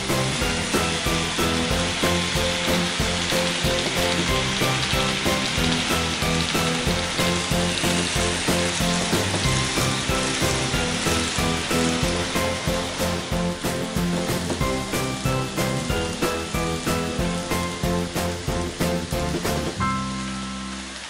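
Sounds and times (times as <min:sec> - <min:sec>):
background music with a beat: 0:00.0 - 0:20.8
model trains rattling on track: 0:00.1 - 0:18.5.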